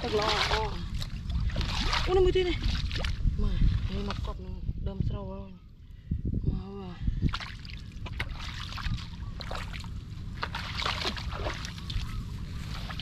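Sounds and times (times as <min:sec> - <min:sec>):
muddy water sloshing: 0:00.0 - 0:04.5, 0:07.1 - 0:13.0
steady low rumble: 0:00.0 - 0:13.0.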